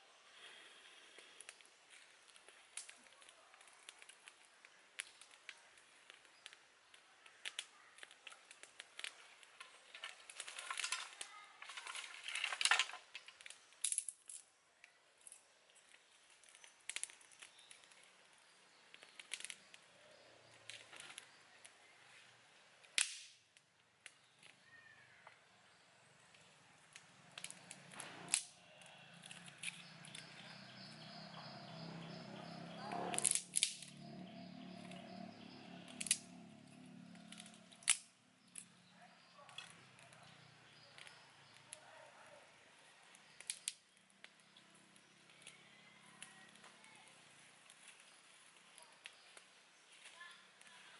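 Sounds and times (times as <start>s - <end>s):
sticks cracking and snapping: 1.2s - 21.8s, 22.8s - 24.6s, 26.3s - 41.9s, 43.1s - 45.6s.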